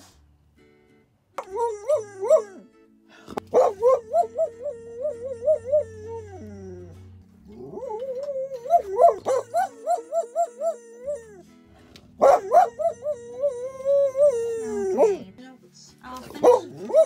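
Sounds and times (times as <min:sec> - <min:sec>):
soft background music: 0:00.0 - 0:17.0
dog howling with warbling pitch: 0:01.4 - 0:02.7, 0:03.5 - 0:11.5, 0:12.2 - 0:15.2, 0:16.7 - 0:17.0.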